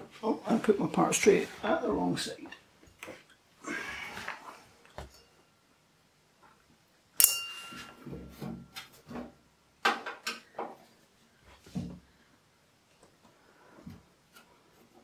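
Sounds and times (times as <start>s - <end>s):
metallic clink with ringing: 7.2s - 8.1s.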